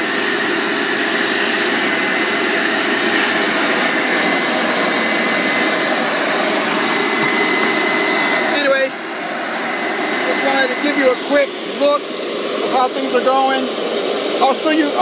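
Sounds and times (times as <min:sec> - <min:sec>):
vacuum running with high whine: 0:00.0 - 0:15.0
vacuum sucking liquid from carpet: 0:00.0 - 0:15.0.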